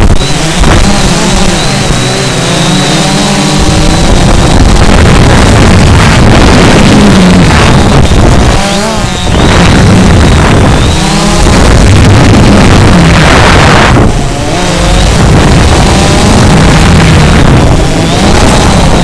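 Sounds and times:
drone motors and propellers whining: 0:00.0 - 0:19.0
wind rumbling on microphone: 0:00.0 - 0:19.0.

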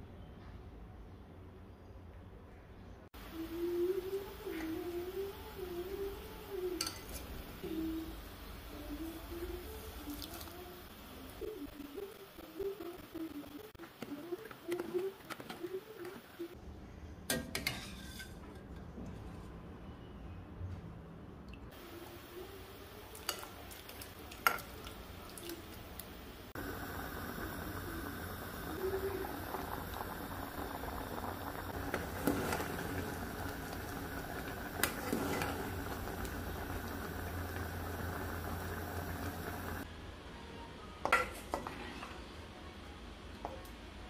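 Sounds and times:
pot bubbling at a simmer: 0:03.2 - 0:16.6, 0:21.7 - 0:39.9.

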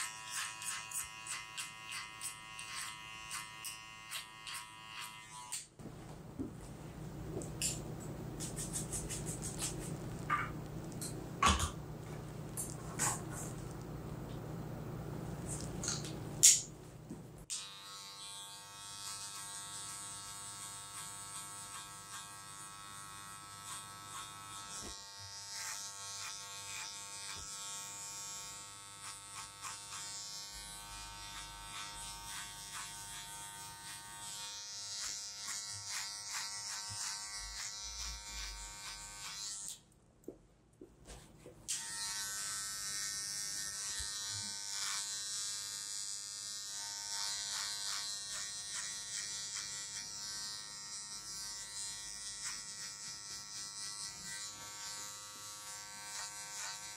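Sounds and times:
electric hair trimmer buzzing: 0:00.0 - 0:05.7, 0:17.5 - 0:39.8, 0:41.7 - 0:56.9.

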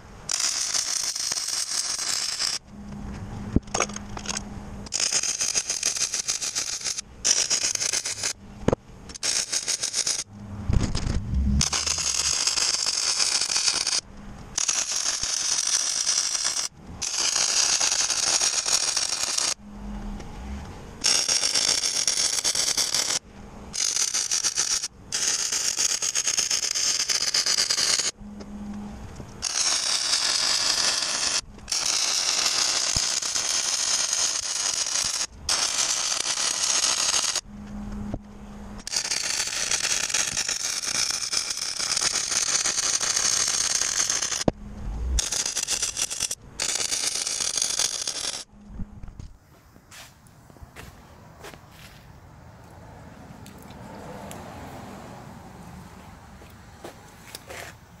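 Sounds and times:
low hum: 0:02.6 - 0:05.0, 0:10.1 - 0:14.6, 0:19.5 - 0:21.1, 0:28.1 - 0:29.6, 0:37.4 - 0:39.0, 0:43.4 - 0:51.4
arc welding crackling hiss: 0:14.6 - 0:19.6, 0:29.4 - 0:37.4, 0:38.8 - 0:44.5.

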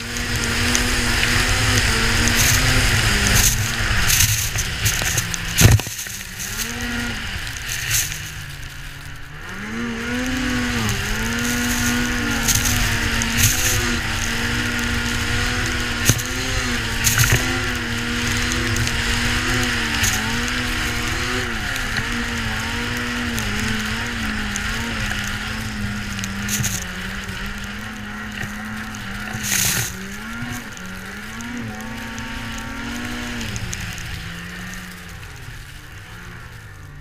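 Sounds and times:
snowmobile engine running: 0:00.0 - 0:37.0
sled knocking over bumps: 0:02.0 - 0:07.1.

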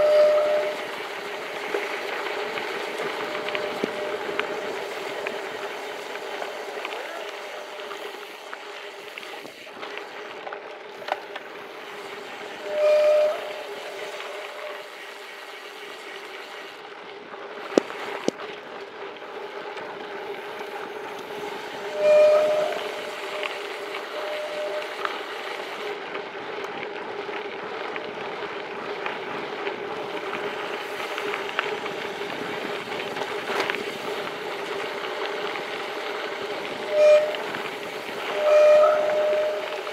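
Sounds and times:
disc brakes squealing: 0:00.0 - 0:00.9, 0:12.5 - 0:15.0, 0:21.8 - 0:25.1, 0:36.8 - 0:39.9
bike tyre rumble: 0:00.0 - 0:39.9
wind: 0:00.0 - 0:39.9.

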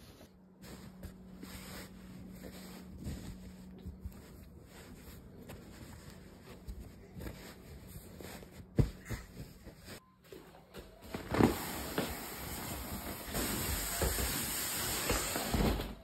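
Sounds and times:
blanket rustling: 0:00.0 - 0:10.0.

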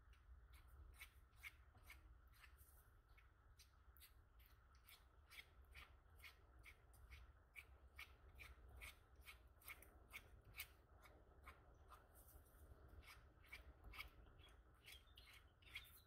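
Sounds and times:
spatula scraping ointment on paper: 0:00.4 - 0:16.0.

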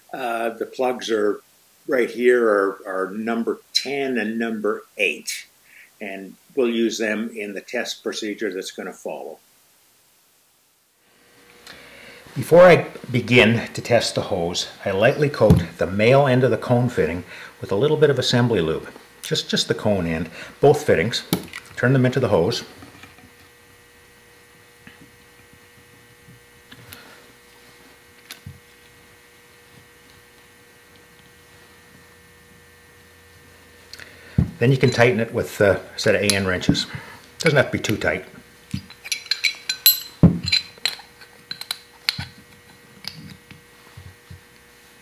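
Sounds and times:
steady faint hum: 0:00.0 - 0:45.0
metallic clinks of wrench and fittings: 0:38.8 - 0:42.2.

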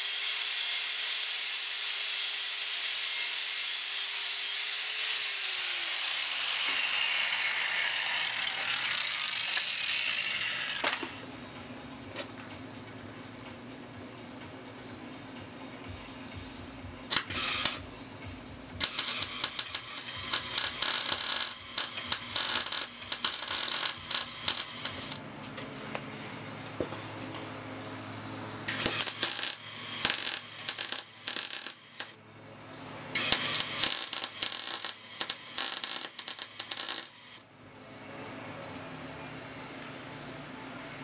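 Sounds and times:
welder arc crackling: 0:17.1 - 0:17.8, 0:18.8 - 0:25.2, 0:28.7 - 0:32.2, 0:33.2 - 0:37.4.

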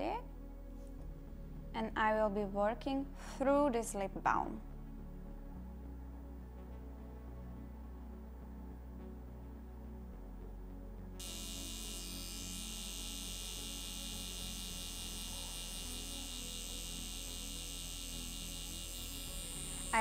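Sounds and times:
low steady hum: 0:00.0 - 0:20.0
tattoo pen buzzing: 0:11.2 - 0:20.0.

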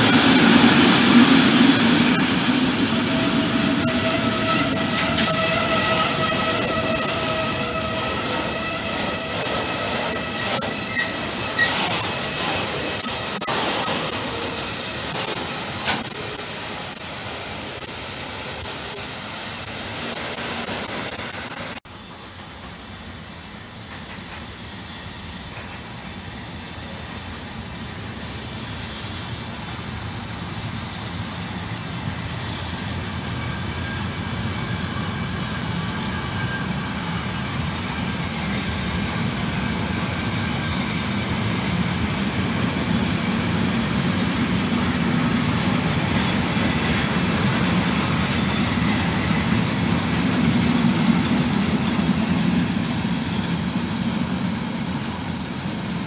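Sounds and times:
train wagons rumbling on rails: 0:00.0 - 0:56.0
high-pitched wheel squeals: 0:03.3 - 0:21.8.

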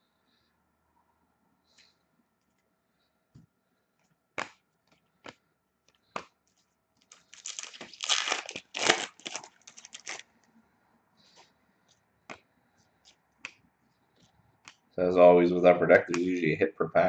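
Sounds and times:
wrapper tearing and crinkling: 0:07.1 - 0:10.3.

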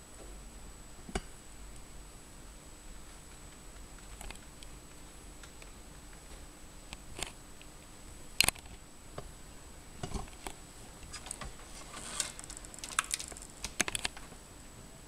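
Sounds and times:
faint high-pitched whine: 0:00.0 - 0:15.0
camera handling clicks and rustles: 0:12.1 - 0:14.2.

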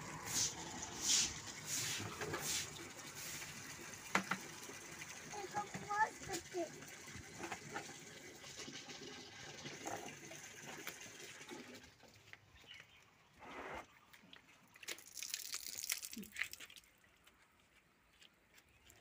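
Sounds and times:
cloth scrubbing a shoe: 0:00.3 - 0:03.4
water dripping from tap: 0:03.6 - 0:07.3, 0:14.8 - 0:16.9.

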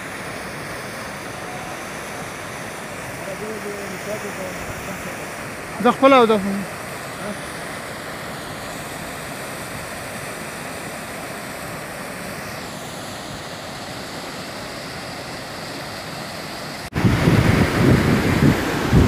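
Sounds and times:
waterfall rushing: 0:00.0 - 0:19.0.

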